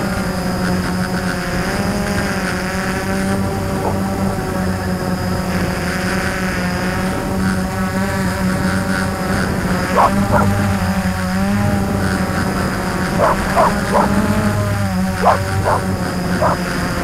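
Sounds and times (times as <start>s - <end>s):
drone propellers humming: 0.0s - 17.0s
dog barking: 3.4s - 4.4s, 9.9s - 11.0s, 13.1s - 16.8s.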